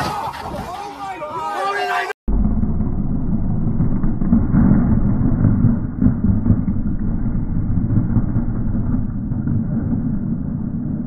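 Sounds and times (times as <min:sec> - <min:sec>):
truck engine rumbling: 0:02.3 - 0:11.0.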